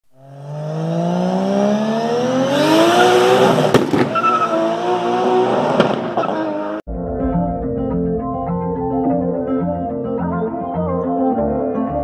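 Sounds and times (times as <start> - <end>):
car engine accelerating: 0.1 - 6.8
tyre squeal: 4.0 - 5.2, 6.1 - 6.8.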